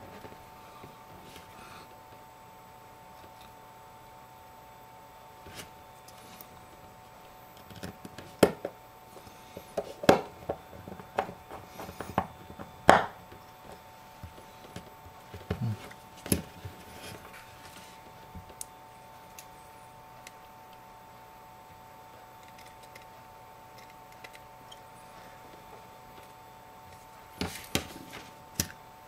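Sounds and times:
faint high hum: 0.0s - 29.0s.

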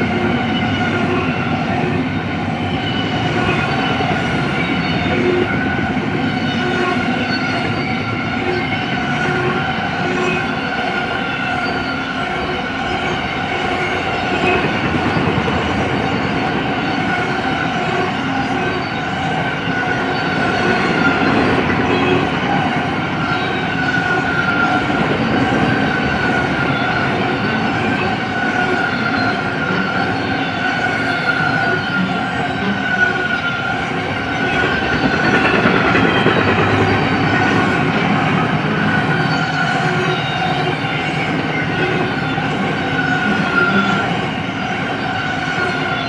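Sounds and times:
steel wheels rumbling on rail: 0.0s - 46.0s
high steady whine: 30.8s - 41.9s.

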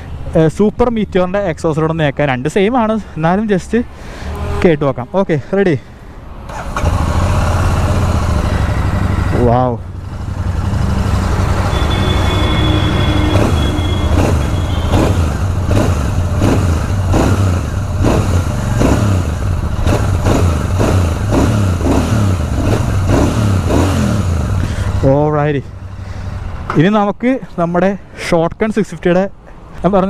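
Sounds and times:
motorcycle engine revving: 6.5s - 25.2s.

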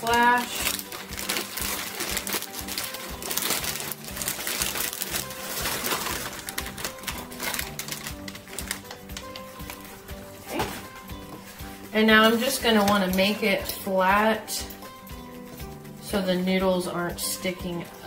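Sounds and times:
frozen noodles rattling into pot: 0.0s - 9.8s
background music: 0.0s - 18.0s.

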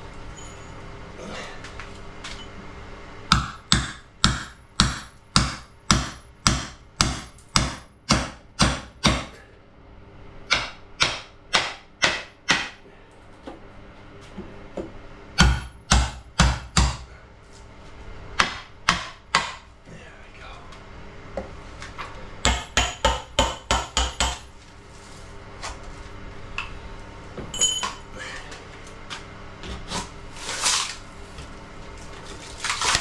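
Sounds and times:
hammer striking chisel: 3.3s - 9.4s, 10.5s - 12.8s, 15.4s - 17.1s, 18.4s - 19.7s, 22.4s - 24.5s
sharp metallic clinks: 27.5s - 28.1s.

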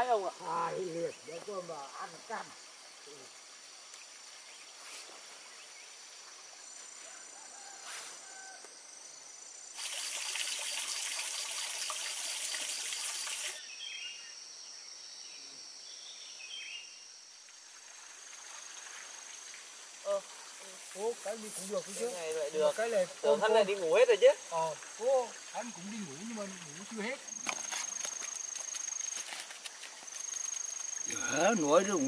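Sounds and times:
high insect tones: 0.0s - 32.0s
loud insect buzz: 9.1s - 14.3s.

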